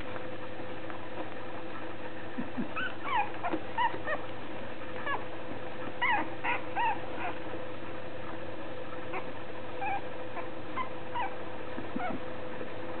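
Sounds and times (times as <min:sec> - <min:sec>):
puppies whimpering: 0:02.6 - 0:04.3, 0:04.9 - 0:05.2, 0:05.9 - 0:07.4, 0:09.0 - 0:12.3.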